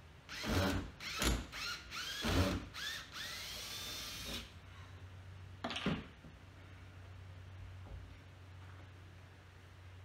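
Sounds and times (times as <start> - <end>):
cordless drill motor whine: 0.3 - 4.5.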